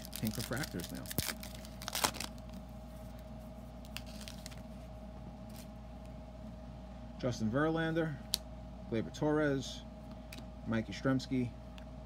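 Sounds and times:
card pack wrapper crinkling: 0:00.0 - 0:02.6, 0:03.8 - 0:04.7
steady low hum: 0:00.0 - 0:12.0.

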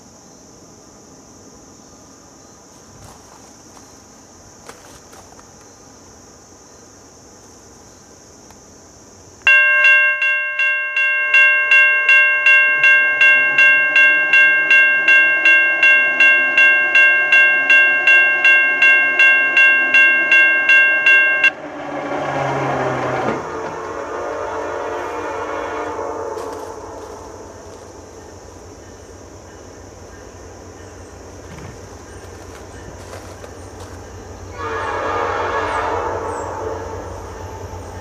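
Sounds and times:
high insect drone: 0:00.0 - 0:38.0
low train rumble: 0:00.0 - 0:38.0
railroad crossing bell ringing: 0:09.5 - 0:21.7.

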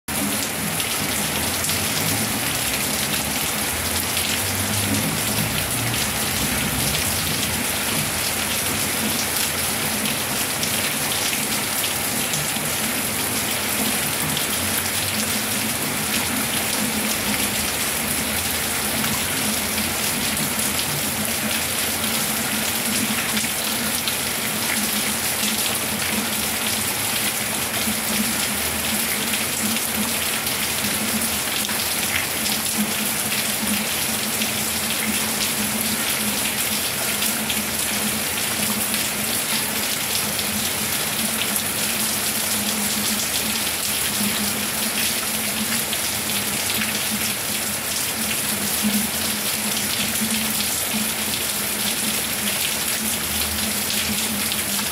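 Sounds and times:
steady rain falling: 0:00.1 - 0:54.9.

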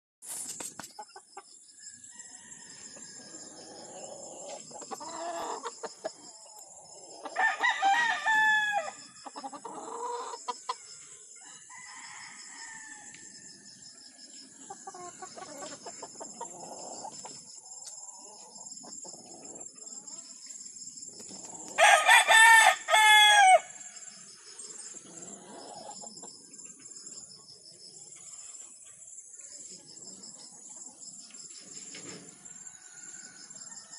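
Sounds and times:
chicken clucks and short calls: 0:00.4 - 0:07.4, 0:08.9 - 0:12.1, 0:13.0 - 0:20.5, 0:24.5 - 0:33.9
rooster crowing: 0:07.3 - 0:09.1, 0:11.4 - 0:13.2, 0:21.8 - 0:23.8.

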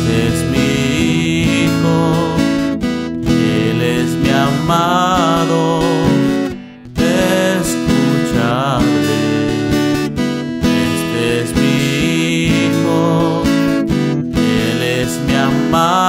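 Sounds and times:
strummed acoustic guitar hymn: 0:00.0 - 0:16.0.

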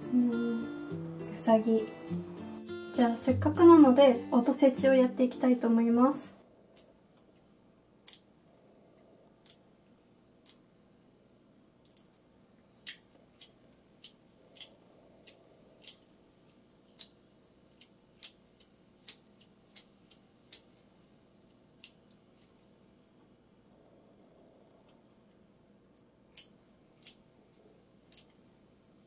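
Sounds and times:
squishy toy clicks and ticks: 0:12.8 - 0:22.6.

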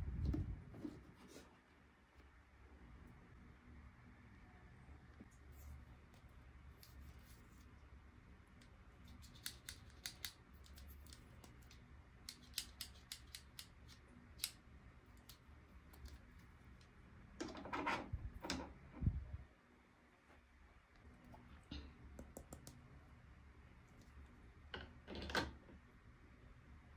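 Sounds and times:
plastic pieces clicking and snipping: 0:08.6 - 0:16.2.

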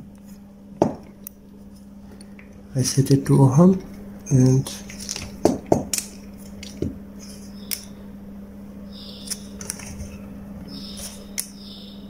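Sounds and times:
test probes clicking and rubbing: 0:04.7 - 0:07.9, 0:09.2 - 0:10.2.

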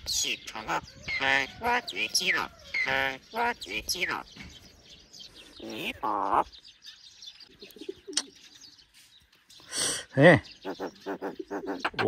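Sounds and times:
myna calling: 0:00.0 - 0:04.4, 0:05.5 - 0:06.6, 0:10.5 - 0:12.0
bird hissing: 0:09.7 - 0:11.9.

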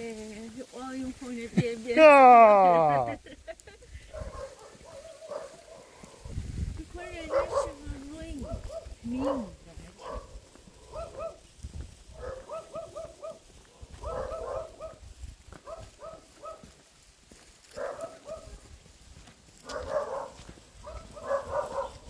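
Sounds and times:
dog barking: 0:04.1 - 0:06.3, 0:07.2 - 0:07.8, 0:08.4 - 0:11.4, 0:12.2 - 0:15.0, 0:15.6 - 0:16.8, 0:17.7 - 0:18.7, 0:19.6 - 0:22.0.

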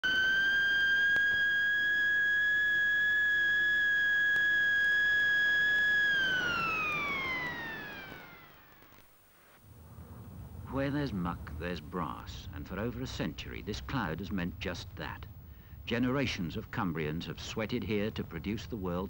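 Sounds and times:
high-pitched tone gliding down: 0:00.0 - 0:08.8.

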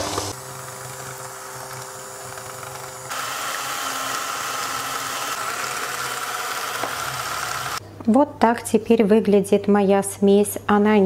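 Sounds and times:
electric hand mixer beating: 0:00.0 - 0:07.8.

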